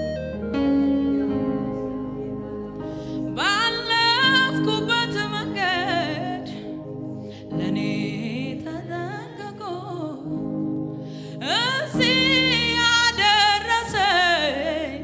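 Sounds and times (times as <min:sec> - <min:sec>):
electric keyboard chords: 0:00.0 - 0:15.0
woman singing into a microphone: 0:03.3 - 0:15.0.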